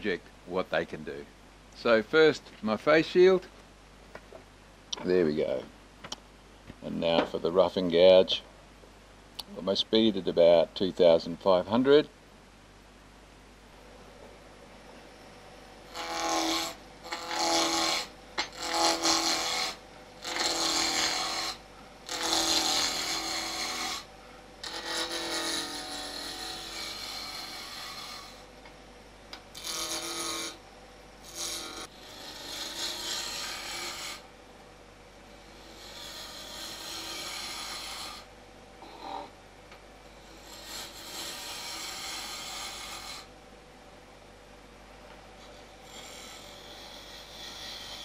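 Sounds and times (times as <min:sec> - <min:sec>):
gouge cutting wood on a lathe: 0:15.9 - 0:28.5, 0:29.6 - 0:30.6, 0:31.2 - 0:34.3, 0:35.3 - 0:38.3, 0:40.2 - 0:43.3, 0:45.6 - 0:48.0.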